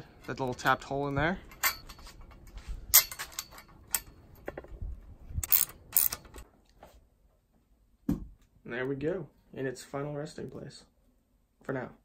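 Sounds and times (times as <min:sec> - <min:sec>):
metal clicks and clinks: 0:01.4 - 0:04.7, 0:05.4 - 0:06.4
socket wrench clicking: 0:05.4 - 0:06.4.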